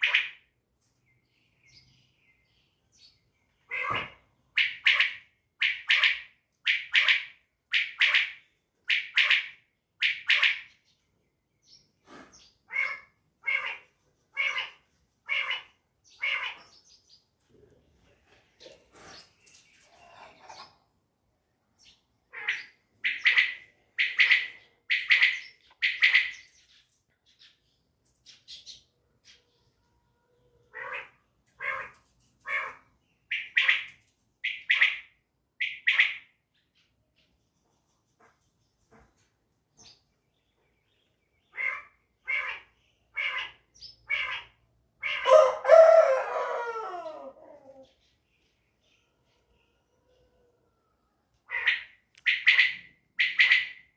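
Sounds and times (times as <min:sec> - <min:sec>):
quail calls: 0:00.0 - 0:00.4, 0:03.6 - 0:10.7, 0:12.1 - 0:16.8, 0:22.3 - 0:26.5, 0:30.7 - 0:36.3, 0:41.5 - 0:47.8, 0:51.5 - 0:53.9
rooster crowing: 0:45.2 - 0:47.8.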